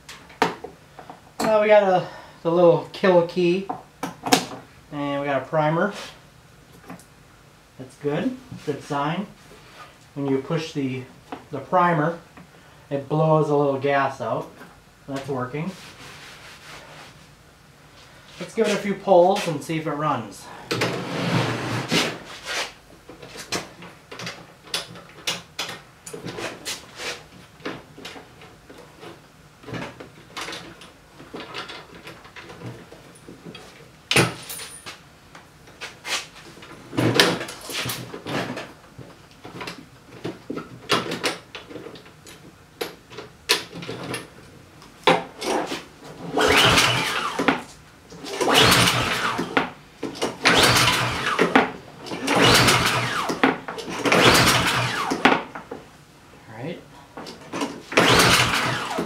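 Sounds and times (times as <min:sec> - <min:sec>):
engine cranking with recoil starter: 0:46.2 - 0:47.6, 0:48.2 - 0:49.6, 0:50.2 - 0:55.3, 0:57.6 - 0:59.0.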